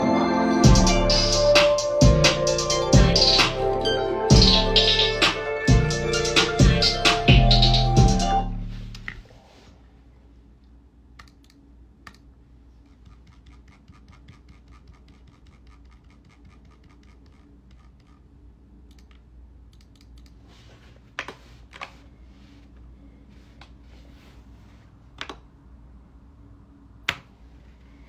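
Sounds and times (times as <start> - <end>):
typing on computer keyboard: 13.0 - 18.2.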